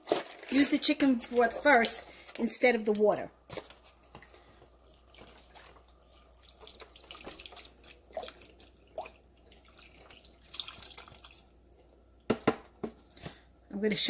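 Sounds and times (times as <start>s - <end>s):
liquid pouring and splashing: 4.8s - 12.3s.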